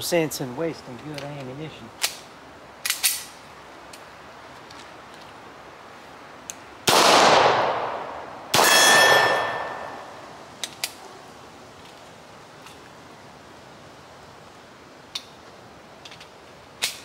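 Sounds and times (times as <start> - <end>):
pistol shots with echo: 6.9 - 10.1
ringing clang: 8.6 - 10.1.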